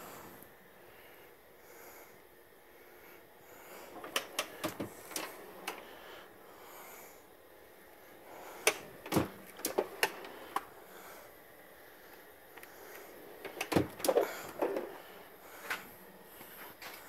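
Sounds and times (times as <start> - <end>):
metal drawers shutting and opening: 3.9 - 5.9, 8.6 - 10.6, 13.4 - 15.0.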